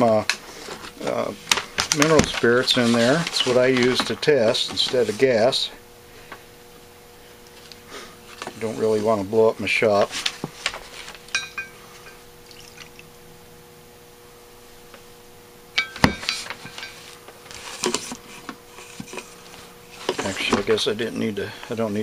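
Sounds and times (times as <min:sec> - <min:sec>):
liquid splashing and trickling: 0:12.4 - 0:13.1.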